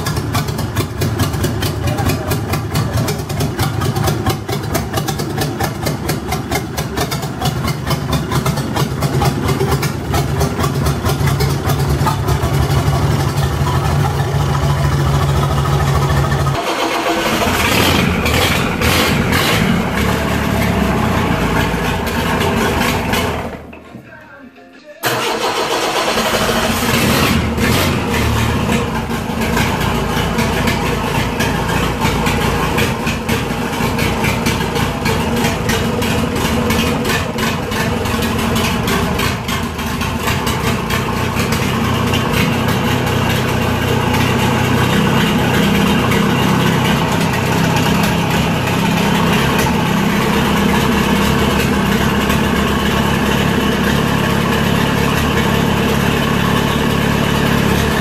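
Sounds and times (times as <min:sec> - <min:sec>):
diesel engine running unevenly: 0:00.0 - 0:23.8, 0:25.1 - 0:58.0.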